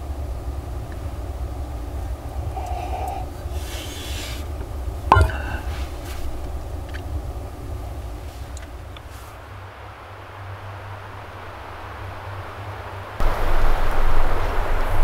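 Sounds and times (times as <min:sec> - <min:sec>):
blizzard wind rumbling: 0:00.0 - 0:15.0
sharp knock: 0:05.1 - 0:05.7.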